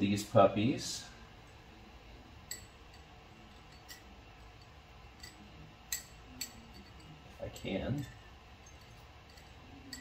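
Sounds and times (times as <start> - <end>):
metal tweezers clicking on glass: 2.5 - 7.8, 8.6 - 10.0.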